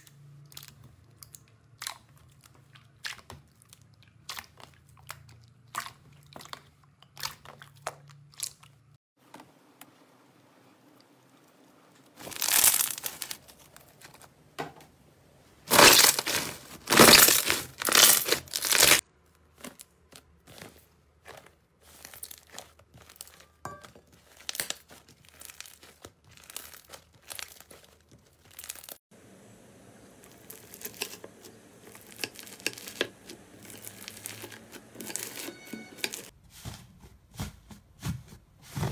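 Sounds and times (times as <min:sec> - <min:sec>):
loud crinkling and crackling: 0:11.9 - 0:14.4, 0:15.6 - 0:20.8, 0:24.2 - 0:29.0, 0:30.2 - 0:36.3.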